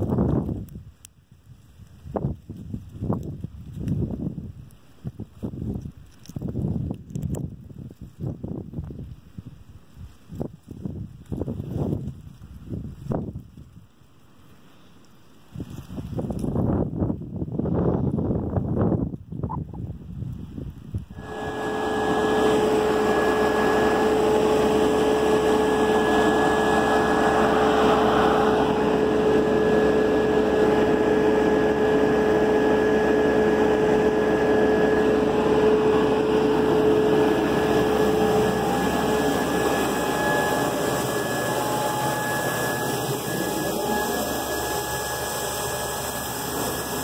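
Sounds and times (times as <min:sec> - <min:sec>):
grain vacuum running: 0:21.1 - 0:47.0.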